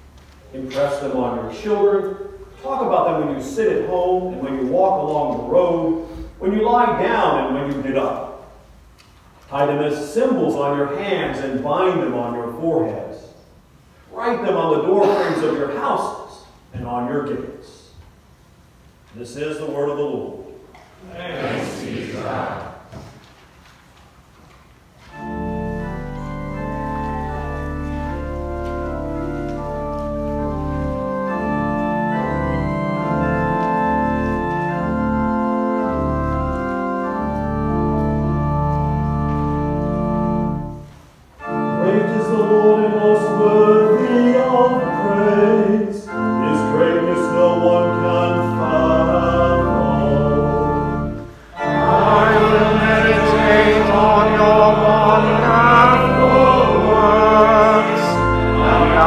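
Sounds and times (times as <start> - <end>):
church organ chords: 0.0 - 8.9, 25.0 - 59.0
voices singing: 21.0 - 22.8, 41.6 - 59.0.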